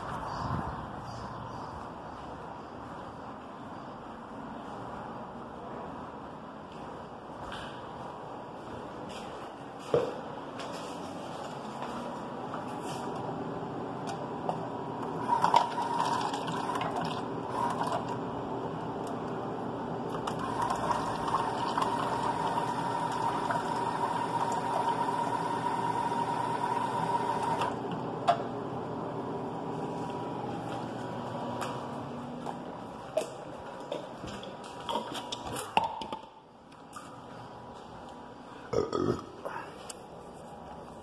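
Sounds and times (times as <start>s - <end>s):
faucet water running: 20.4s - 25.6s.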